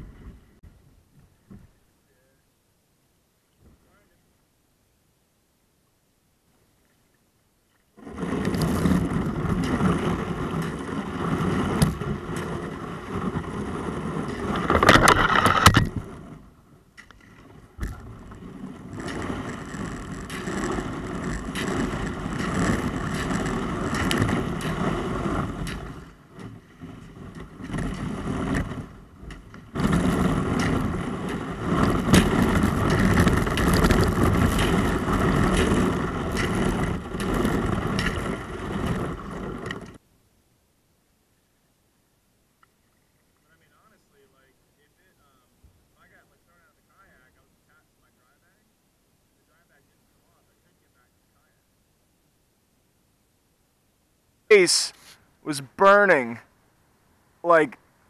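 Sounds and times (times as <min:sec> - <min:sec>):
kayak hull crunching through ice: 0:07.8 - 0:40.0.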